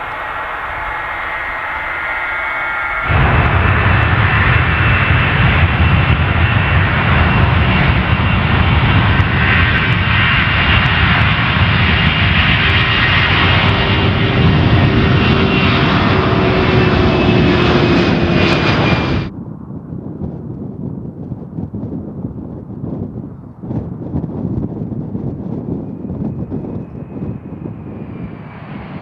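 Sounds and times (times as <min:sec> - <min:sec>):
jet aircraft taking off: 0:00.0 - 0:29.0.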